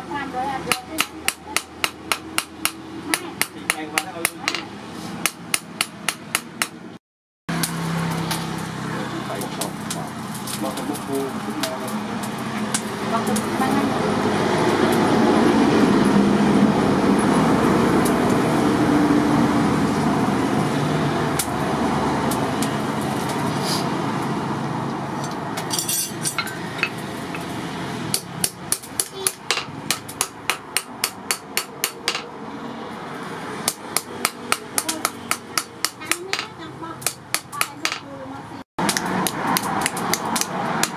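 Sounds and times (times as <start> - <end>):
hammer striking hot steel on anvil: 0.7 - 4.6, 5.2 - 6.8, 28.1 - 32.3, 33.6 - 38.0, 38.9 - 40.9.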